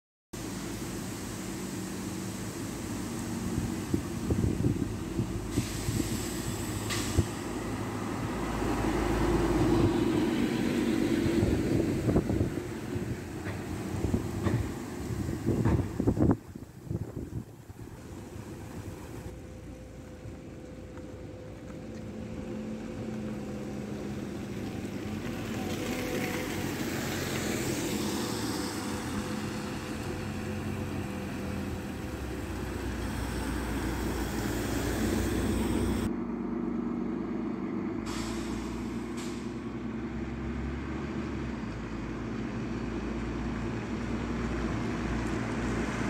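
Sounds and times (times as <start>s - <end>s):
tyre hiss on wet road: 0.4s - 36.1s, 38.0s - 40.3s
bus engine droning: 0.4s - 46.0s.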